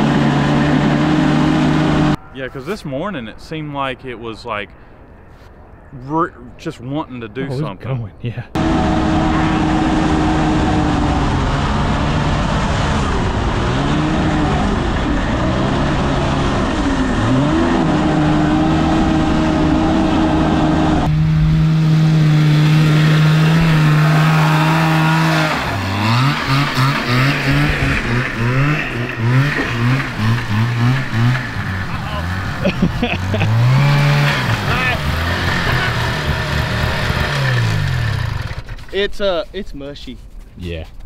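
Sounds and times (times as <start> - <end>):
two-stroke engine revving: 0.0 - 2.2, 8.6 - 39.0.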